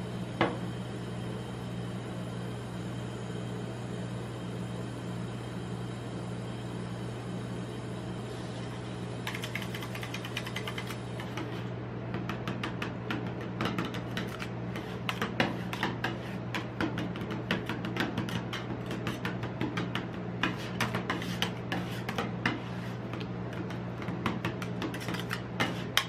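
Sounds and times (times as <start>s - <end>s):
steady low hum: 0.0s - 26.0s
metal spatulas tapping and scraping: 9.3s - 11.6s, 12.2s - 26.0s.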